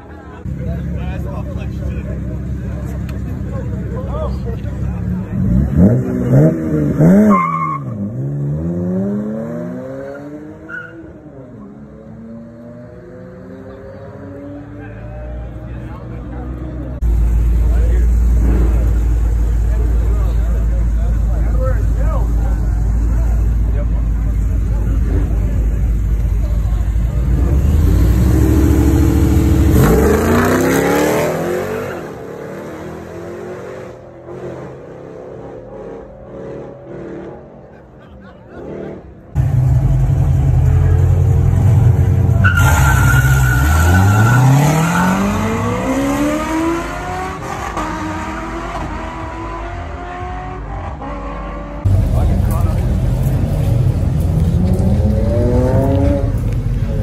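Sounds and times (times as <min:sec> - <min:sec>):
car engine revving and accelerating: 0:04.8 - 0:20.6, 0:27.0 - 0:37.9, 0:38.5 - 0:57.0.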